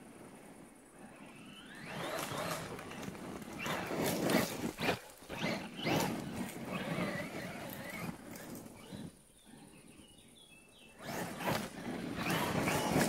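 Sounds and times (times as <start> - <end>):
toy truck moving over ground: 0.1 - 10.0, 10.9 - 13.0
electric motor whine: 1.0 - 9.3, 11.0 - 13.0.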